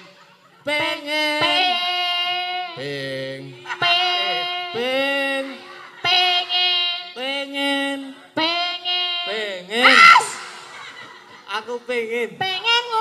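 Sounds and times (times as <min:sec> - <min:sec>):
woman singing into a microphone: 0:12.4 - 0:13.0.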